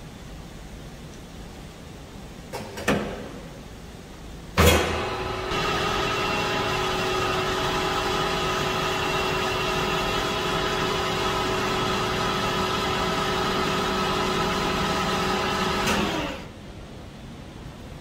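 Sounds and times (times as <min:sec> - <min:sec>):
metal lathe whine: 0:05.0 - 0:16.5.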